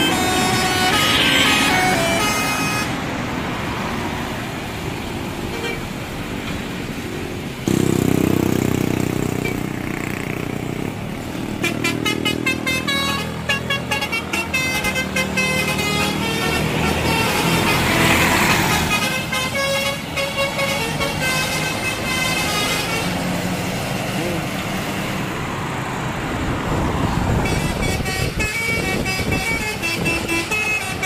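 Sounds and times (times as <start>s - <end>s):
deep bus air horn: 0.0s - 3.0s, 11.6s - 23.3s, 27.4s - 31.0s
multi-tone horn melody: 0.0s - 3.1s, 11.6s - 23.4s, 27.4s - 31.0s.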